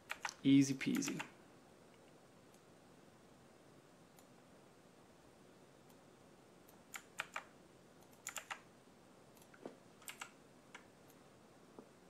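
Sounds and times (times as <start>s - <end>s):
keyboard keystrokes clicking: 0.0s - 1.3s, 6.9s - 8.6s, 9.4s - 10.9s.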